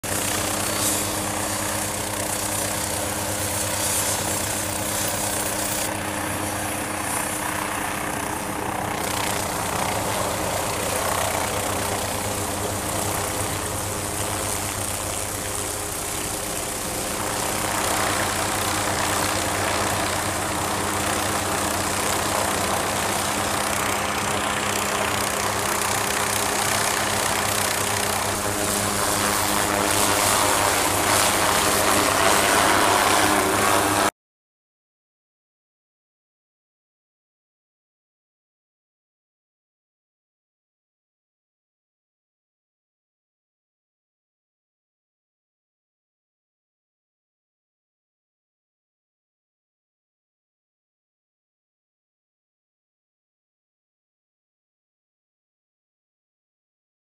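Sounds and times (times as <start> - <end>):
helicopter engine drone: 0.0 - 34.1.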